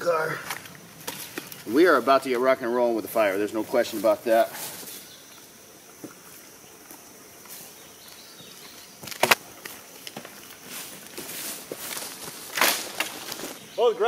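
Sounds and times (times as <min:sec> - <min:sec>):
dry sticks cracking: 0:00.4 - 0:01.7, 0:09.0 - 0:13.6
footsteps in grass: 0:00.5 - 0:13.8
dry wood being handled: 0:07.4 - 0:13.6.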